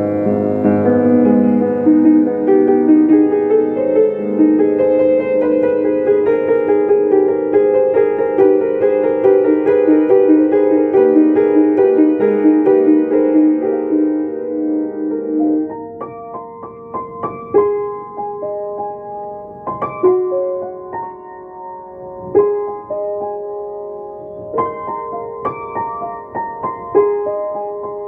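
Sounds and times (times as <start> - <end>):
keyboard playing sustained chords: 0.0 - 5.5.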